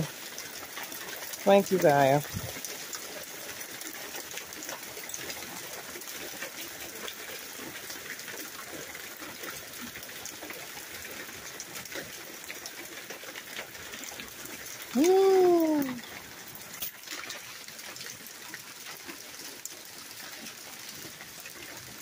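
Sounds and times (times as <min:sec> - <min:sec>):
hailstones ticking: 0:00.0 - 0:22.0
rain hissing: 0:13.9 - 0:16.9.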